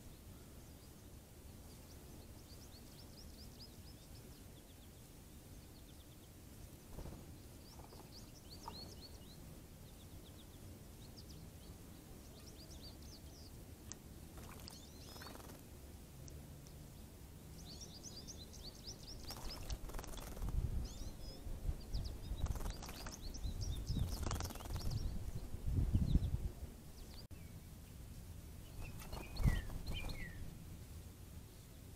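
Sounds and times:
songbirds chirping: 0.0s - 31.9s
bird splashing in water: 14.3s - 15.6s.

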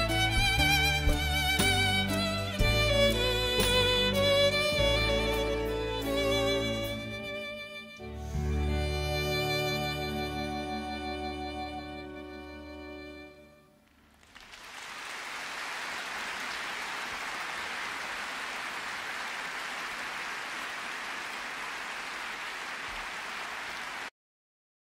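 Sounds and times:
soft orchestral strings: 0.0s - 14.0s
audience applause: 14.0s - 24.1s.

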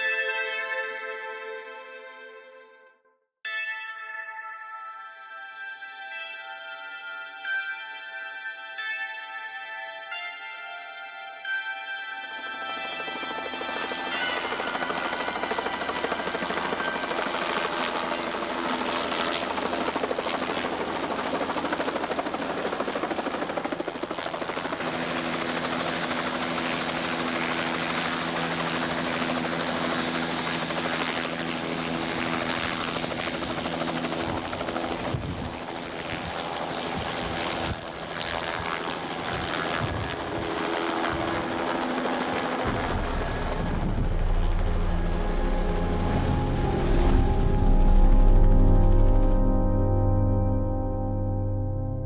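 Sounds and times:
helicopter engine noise: 12.3s - 50.0s
helicopter rotor chopping: 12.8s - 49.5s.

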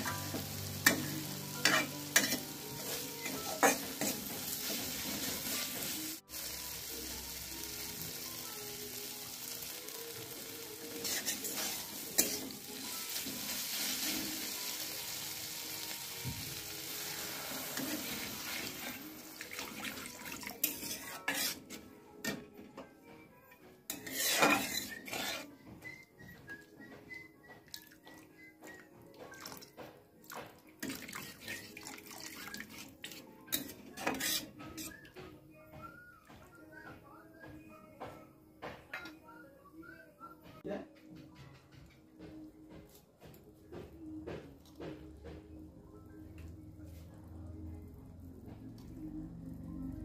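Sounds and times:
spoon scraping pan: 0.0s - 6.0s, 11.0s - 12.8s, 17.0s - 22.4s, 23.9s - 25.7s, 30.9s - 35.0s
food sizzling in pan: 0.0s - 21.9s, 23.9s - 25.6s, 30.4s - 35.0s.

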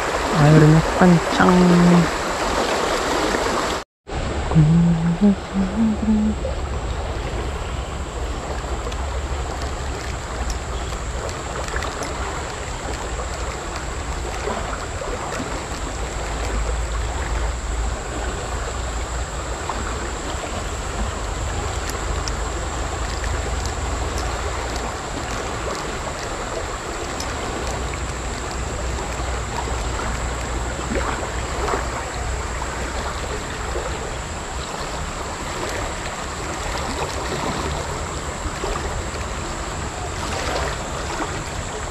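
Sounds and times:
river water rushing over rocks: 21.1s - 41.9s.

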